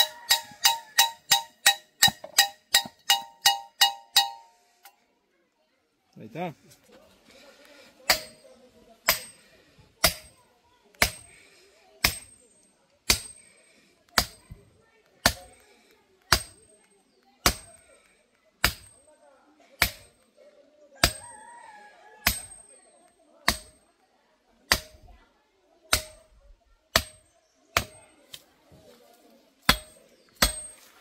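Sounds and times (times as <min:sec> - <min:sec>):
sledgehammer striking steel probe: 0:00.0 - 0:04.6, 0:08.1 - 0:09.4, 0:10.0 - 0:10.4, 0:11.0 - 0:11.3, 0:12.0 - 0:12.5, 0:13.1 - 0:14.6, 0:15.2 - 0:15.6, 0:16.3 - 0:16.8, 0:17.4 - 0:17.8, 0:18.6 - 0:19.0, 0:19.8 - 0:20.2, 0:21.0 - 0:21.3, 0:22.3 - 0:22.8, 0:23.5 - 0:23.8, 0:24.7 - 0:25.1, 0:25.9 - 0:26.2, 0:27.0 - 0:28.0, 0:29.6 - 0:30.9.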